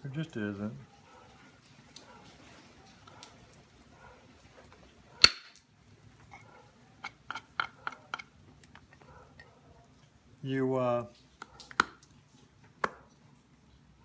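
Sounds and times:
wooden billet knocking punch: 0:05.2 - 0:05.6.

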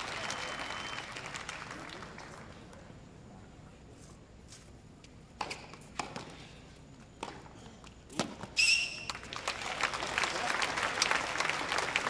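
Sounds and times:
crowd applauding: 0:00.0 - 0:02.7, 0:09.0 - 0:12.0.

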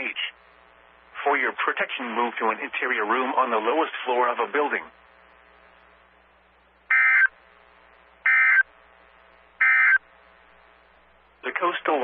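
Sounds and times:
short buzzing data bursts: 0:06.9 - 0:10.8.

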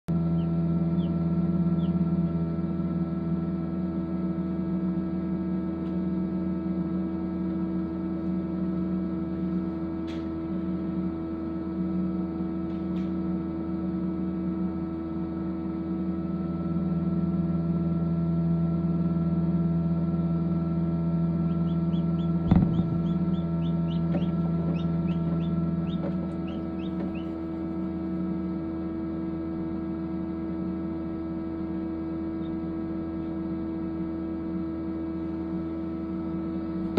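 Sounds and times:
fan electric hum: 0:00.1 - 0:36.9
chick peeping: 0:00.4 - 0:01.2, 0:01.8 - 0:02.0, 0:21.5 - 0:27.3.

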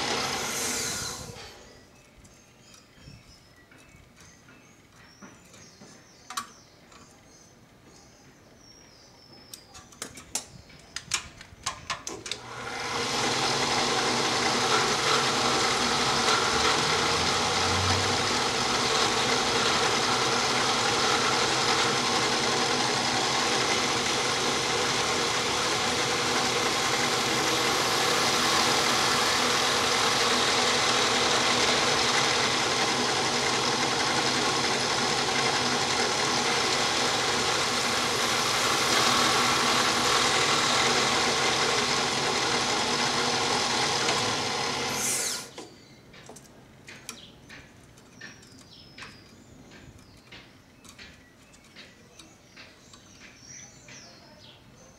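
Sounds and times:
electric drill running: 0:00.0 - 0:01.7, 0:12.4 - 0:45.6
sharp clicks and knocks: 0:45.6 - 0:54.1.

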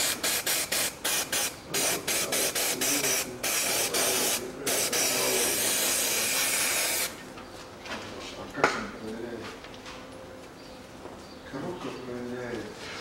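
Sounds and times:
aerosol spray can hissing: 0:00.0 - 0:07.2.

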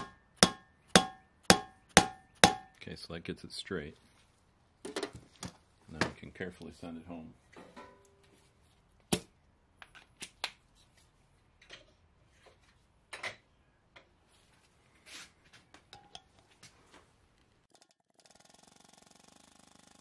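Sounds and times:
metal tools clicking and knocking: 0:15.9 - 0:16.5.

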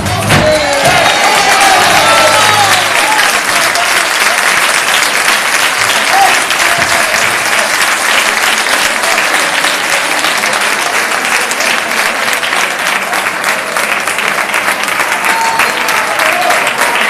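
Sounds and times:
audience applauding: 0:00.0 - 0:17.0.

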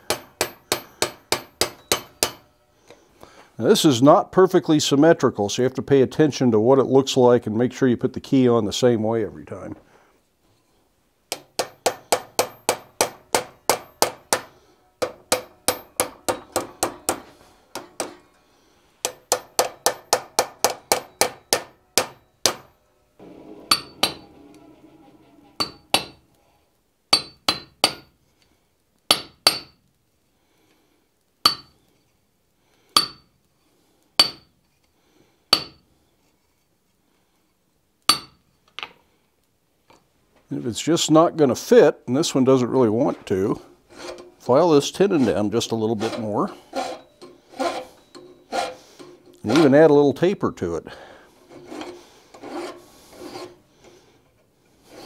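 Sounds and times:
hammer strikes with high ring: 0:00.1 - 0:02.6, 0:19.1 - 0:22.8, 0:23.7 - 0:24.3.

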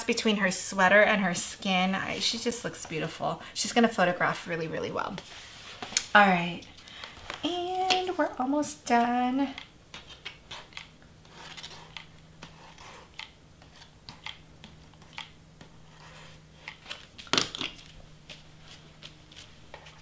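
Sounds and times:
faint low hum: 0:00.0 - 0:20.0
cardstock rustling and scraping: 0:09.9 - 0:20.0.

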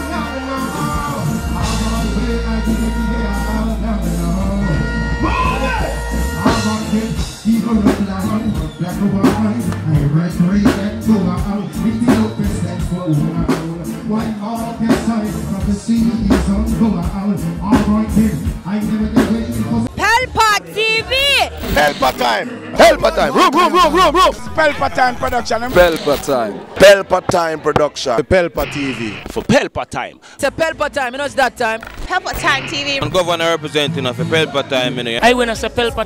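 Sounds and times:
person singing into a microphone: 0:00.0 - 0:05.6
live reggae music: 0:00.0 - 0:36.0
steady drum beat: 0:00.1 - 0:20.2
deep held bass note: 0:00.9 - 0:07.1.

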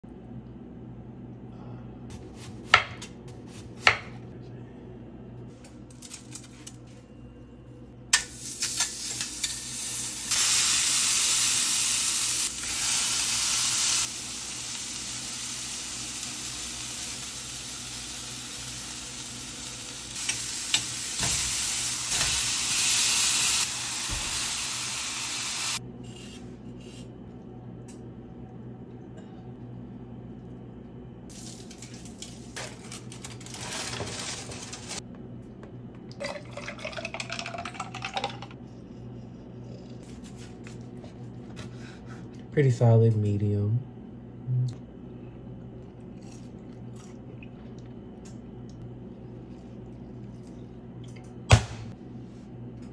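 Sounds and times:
burger patties sizzling: 0:08.2 - 0:25.8.

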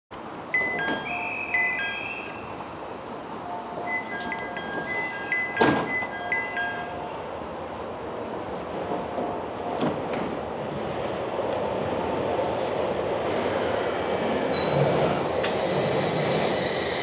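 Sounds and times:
train standing hum: 0:00.1 - 0:17.0.

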